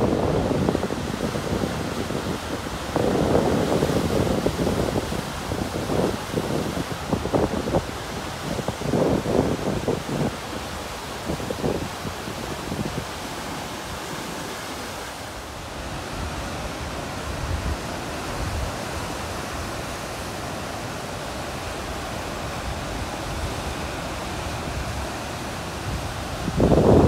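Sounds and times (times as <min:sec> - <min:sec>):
surf breaking over rocks: 0:00.0 - 0:27.0.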